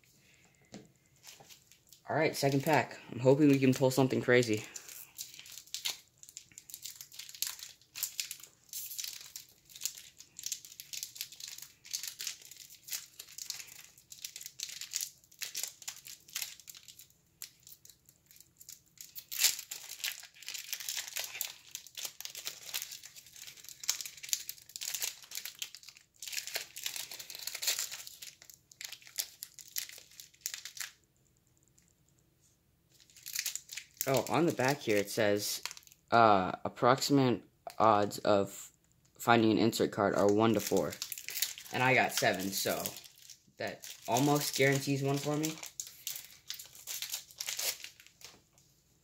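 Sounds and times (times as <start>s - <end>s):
wax paper tearing and crinkling: 3.4s - 31.0s, 33.0s - 35.9s, 40.2s - 48.4s.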